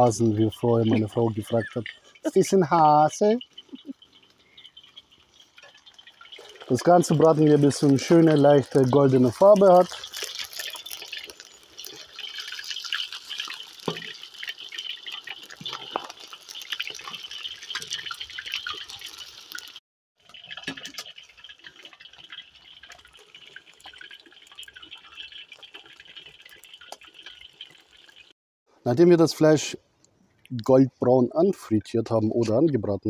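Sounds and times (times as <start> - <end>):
chicken deep-frying in oil: 0.0 - 28.4.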